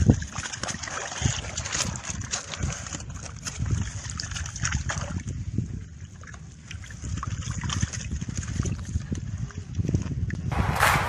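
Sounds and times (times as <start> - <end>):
water splashing and dripping: 0.0 - 5.4
steady low rumble: 10.5 - 11.0.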